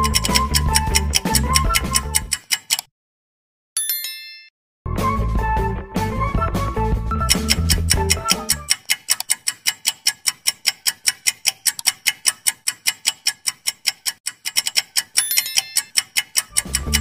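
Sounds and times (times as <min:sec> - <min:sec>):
music: 0:00.0 - 0:02.4, 0:04.9 - 0:08.7, 0:16.5 - 0:17.0
clock ticking: 0:00.0 - 0:02.9, 0:07.2 - 0:17.0.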